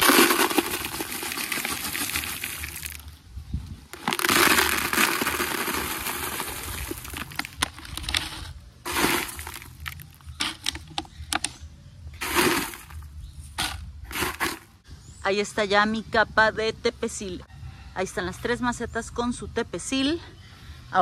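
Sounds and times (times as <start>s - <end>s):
stones clicking against plastic: 0.0s - 3.0s, 3.9s - 11.6s, 12.2s - 13.0s
gravel pouring into plastic pots: 0.0s - 3.1s, 3.9s - 10.9s, 12.2s - 14.7s.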